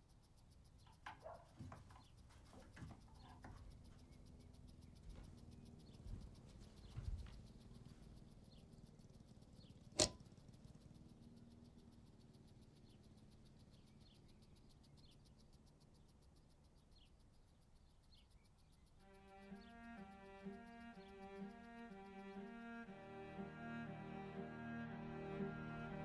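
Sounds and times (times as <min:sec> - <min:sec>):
faint high chirps: 0:00.0 - 0:26.0
low room hum: 0:00.0 - 0:26.0
sharp click: 0:09.8 - 0:10.7.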